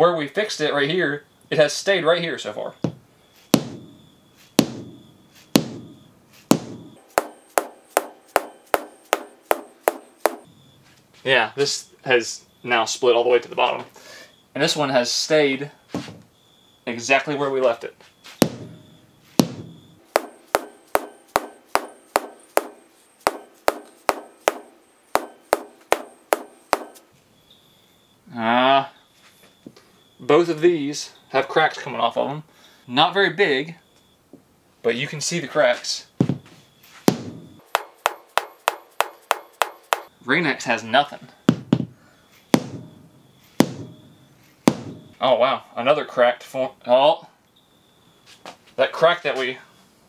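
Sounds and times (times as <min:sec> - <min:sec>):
rubber mallet striking windshield: 0:03.6 - 0:10.5, 0:18.4 - 0:27.1, 0:37.1 - 0:40.1, 0:41.5 - 0:42.0, 0:42.6 - 0:45.2.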